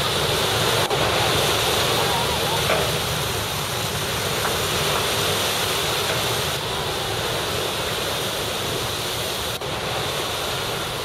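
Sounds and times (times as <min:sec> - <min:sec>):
water rushing along hull: 0:00.0 - 0:11.0.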